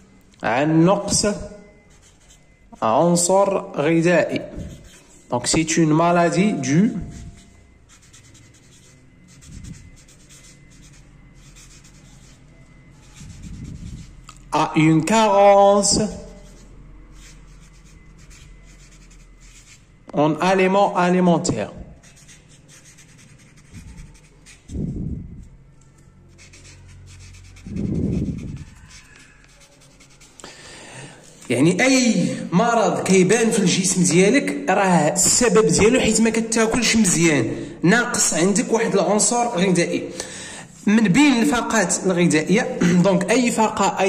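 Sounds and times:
marker pen writing on paper: 0:01.8 - 0:03.6, 0:04.2 - 0:19.9, 0:22.0 - 0:24.8, 0:26.1 - 0:30.4, 0:35.2 - 0:37.2.

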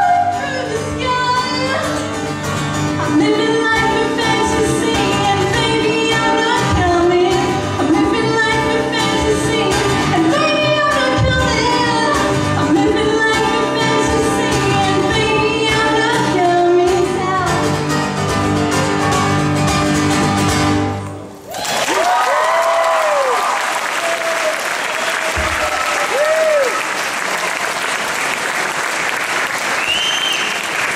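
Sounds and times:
woman singing: 0:00.0 - 0:02.0, 0:03.0 - 0:17.8
acoustic guitar strumming: 0:00.0 - 0:21.4
audience applause: 0:21.4 - 0:30.9
whistling: 0:29.7 - 0:30.8.

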